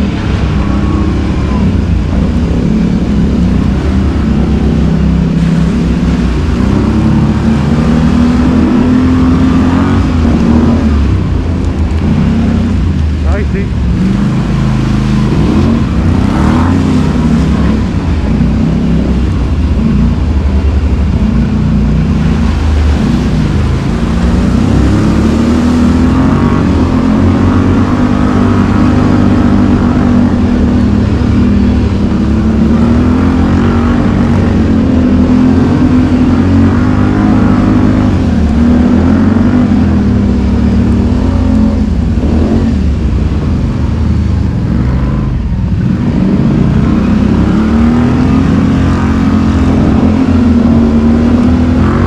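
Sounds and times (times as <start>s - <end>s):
engine revving: 0.0s - 52.0s.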